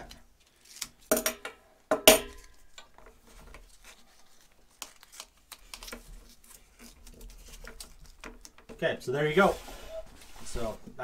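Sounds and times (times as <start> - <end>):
rustling: 2.4 - 11.0.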